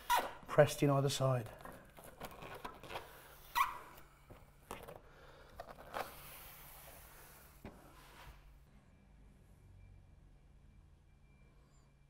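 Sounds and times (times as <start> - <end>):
rubber sheet crinkling: 1.6 - 4.0.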